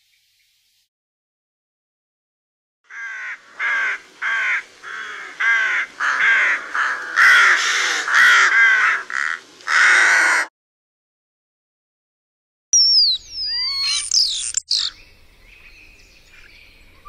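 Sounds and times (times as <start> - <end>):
rook cawing: 2.9 - 10.5.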